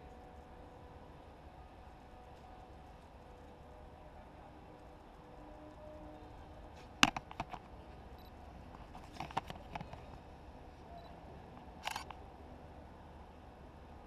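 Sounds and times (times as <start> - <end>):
faint outdoor background: 0.0 - 14.0
camera handling clicks and taps: 7.0 - 7.7, 9.0 - 10.0.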